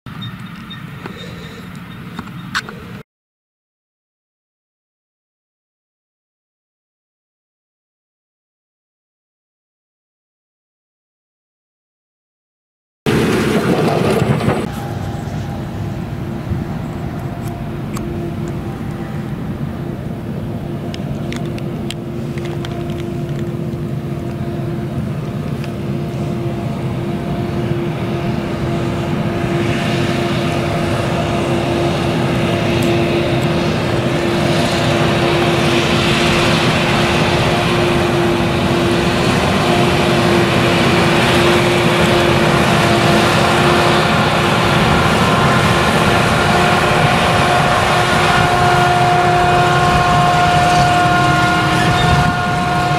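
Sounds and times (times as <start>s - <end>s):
diesel engine under load: 13.1s - 52.9s
machine whine: 13.1s - 52.9s.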